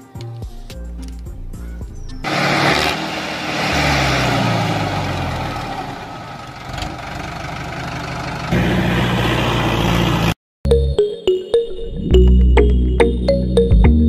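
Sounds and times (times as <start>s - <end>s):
model tractor engine humming: 4.7s - 10.3s.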